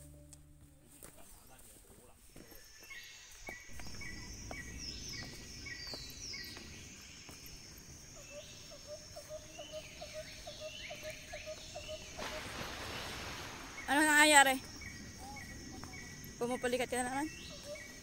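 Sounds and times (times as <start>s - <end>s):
low repeated notes: 0.0s - 1.6s
birds chirping: 0.8s - 18.0s
low rumble: 3.7s - 7.2s.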